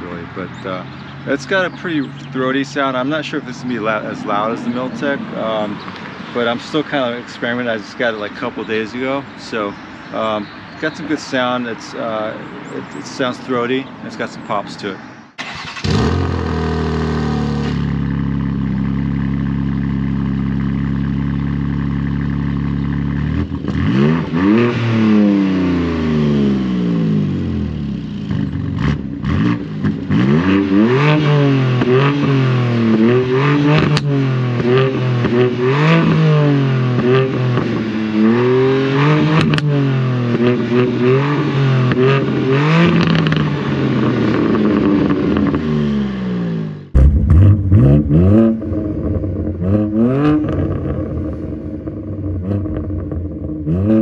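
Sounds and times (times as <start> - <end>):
car engine idling and revving: 0.0 - 54.0
exhaust pops: 39.3 - 40.6, 46.9 - 51.4.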